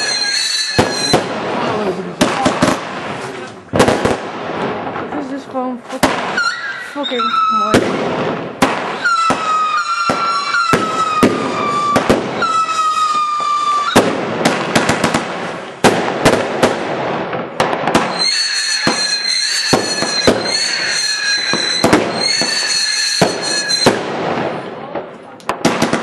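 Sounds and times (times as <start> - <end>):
high-pitched firework whistle: 0.0 - 1.3, 6.3 - 7.8, 8.9 - 14.1, 18.0 - 24.0
whistling firework: 0.0 - 1.7, 6.2 - 16.8, 17.5 - 24.7
fireworks banging and cracking: 0.0 - 26.0.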